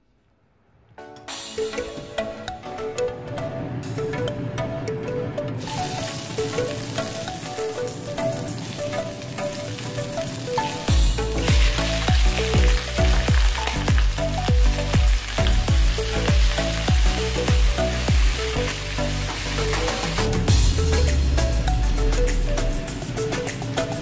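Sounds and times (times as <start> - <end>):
background music: 1.0 - 24.0
meat sizzling in oil: 5.6 - 20.3
bass beat: 10.9 - 23.3.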